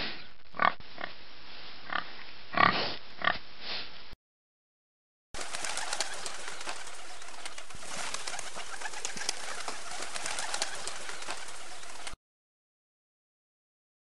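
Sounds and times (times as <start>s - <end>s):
pigeons cooing: 5.4s - 12.2s.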